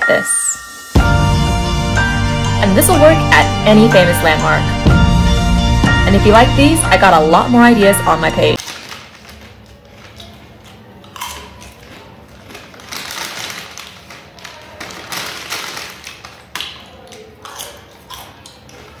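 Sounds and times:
potato chips crunching: 8.6s - 19.0s.

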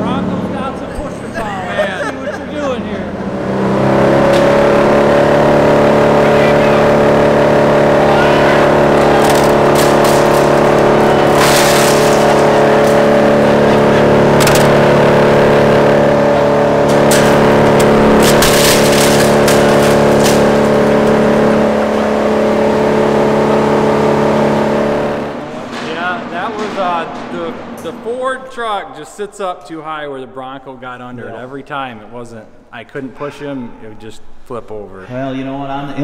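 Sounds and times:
wood chipper running: 0.0s - 28.7s
wood pieces cracking in chipper: 6.2s - 27.4s.

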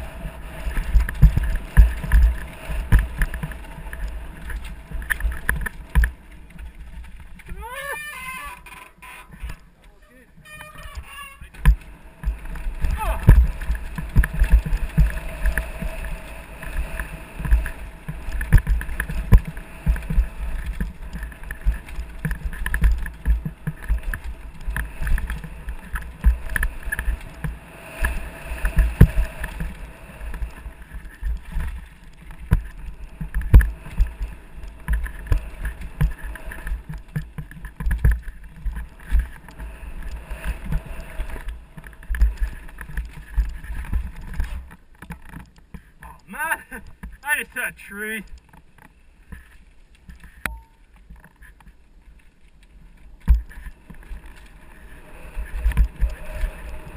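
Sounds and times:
mountain bike rumbling over trail: 0.0s - 47.2s, 51.1s - 56.9s
bike knocking over bumps: 0.7s - 7.6s.

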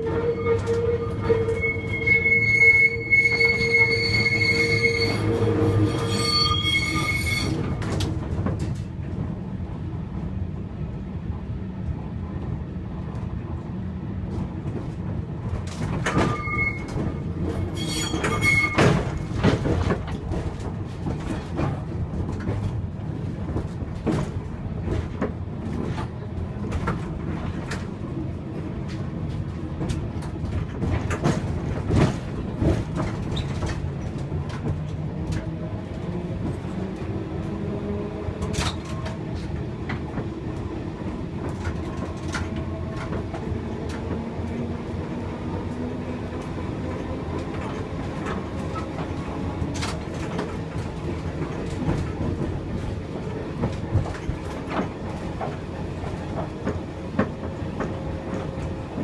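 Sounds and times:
tram wheels squealing on rails: 0.0s - 8.2s, 15.6s - 21.8s, 30.5s - 35.5s
tram running rumble: 0.0s - 59.0s.

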